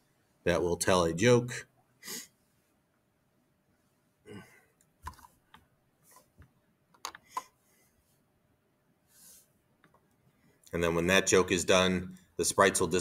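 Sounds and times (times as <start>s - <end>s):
soft breath: 7.2s - 8.2s, 9.0s - 9.6s.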